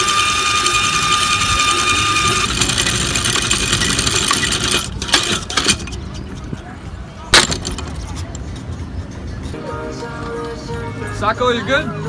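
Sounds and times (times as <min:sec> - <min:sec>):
metallic chain clatter: 0:00.0 - 0:06.4
windlass motor whine: 0:00.0 - 0:07.2
sharp metal clanks: 0:00.7 - 0:06.4, 0:07.3 - 0:08.6.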